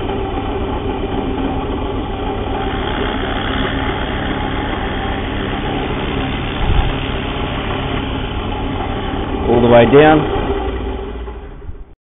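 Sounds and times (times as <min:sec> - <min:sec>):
drill press motor running: 0:00.0 - 0:11.9
drill bit cutting into wood: 0:02.5 - 0:09.3.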